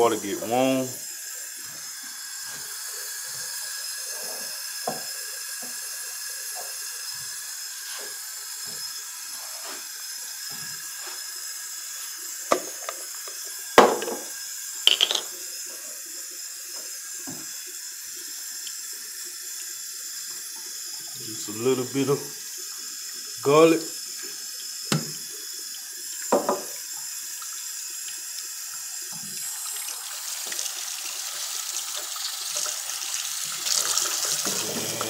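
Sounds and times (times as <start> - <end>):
tap running into steel sink: 4.8 - 5.8, 12.5 - 15.3, 24.9 - 25.3, 26.3 - 26.8.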